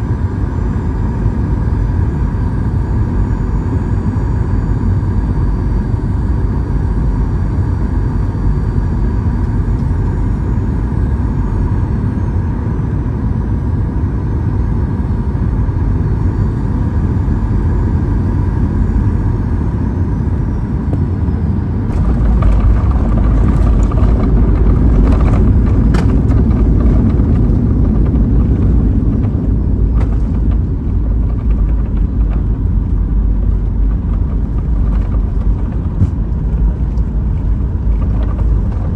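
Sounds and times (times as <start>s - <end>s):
heavy runway rumble: 0.0s - 38.9s
jet engine drone with whine: 0.0s - 38.9s
wheels touching down: 21.9s - 38.9s.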